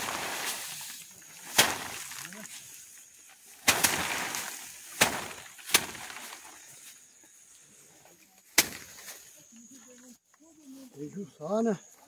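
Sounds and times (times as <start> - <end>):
rice stalks whacked by hand: 0.0 - 2.7, 3.4 - 6.7, 8.4 - 9.2
loose grain and straw rattling: 0.0 - 7.1.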